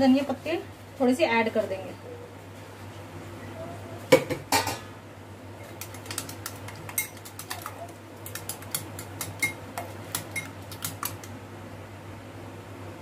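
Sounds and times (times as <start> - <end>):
whisk knocking bowl: 5.7 - 11.4
whisk wires clicking against bowl: 5.7 - 11.4.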